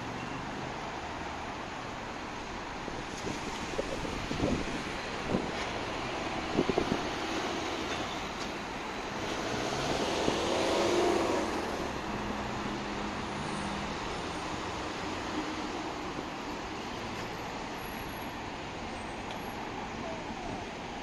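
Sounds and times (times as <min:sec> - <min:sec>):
city traffic noise: 0:00.0 - 0:21.0
vehicle passing close: 0:09.1 - 0:13.8.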